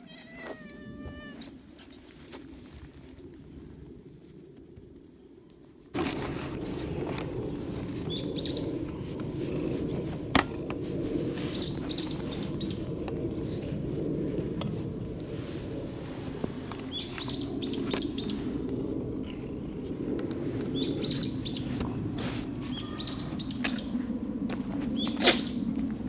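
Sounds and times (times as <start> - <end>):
steady outdoor background hum: 0.0 - 26.0
small birds chirping: 8.1 - 8.8, 11.5 - 12.8, 16.7 - 18.4, 20.8 - 21.7, 22.7 - 23.9.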